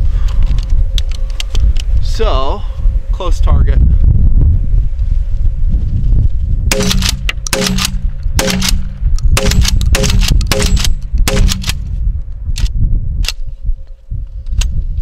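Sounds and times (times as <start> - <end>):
shotgun shots: 6.7 - 11.8.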